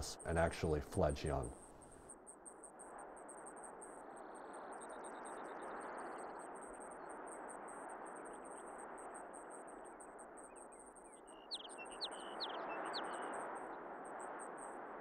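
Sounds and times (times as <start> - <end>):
songbird whistling: 11.3 - 13.3.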